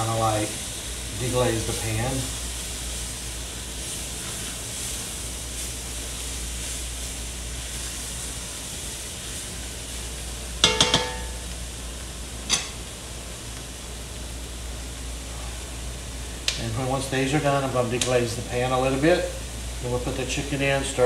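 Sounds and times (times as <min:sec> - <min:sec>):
vegetables sizzling in a pot: 0:00.0 - 0:21.0
sharp knock: 0:10.6 - 0:11.4
utensil clinking against pot: 0:10.6 - 0:11.5.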